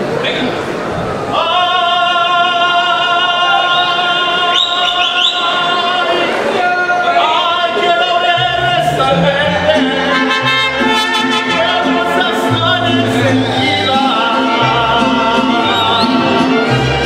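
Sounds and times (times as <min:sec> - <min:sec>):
man singing: 0:01.3 - 0:17.0
bass notes: 0:08.4 - 0:17.0
violins: 0:08.5 - 0:17.0
trumpets: 0:08.7 - 0:17.0.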